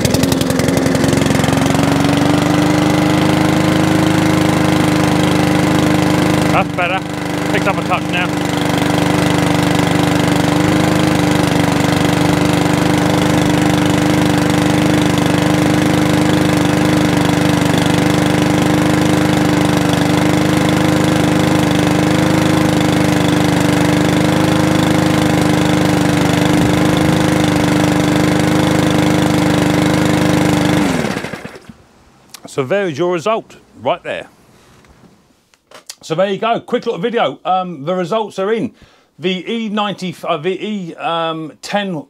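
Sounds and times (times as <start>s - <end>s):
lawnmower engines running: 0.0s - 32.6s.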